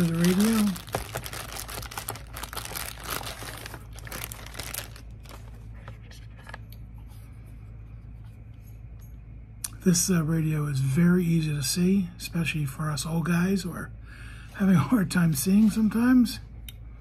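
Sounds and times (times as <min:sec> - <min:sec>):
plastic bag crinkling: 0:00.0 - 0:06.6.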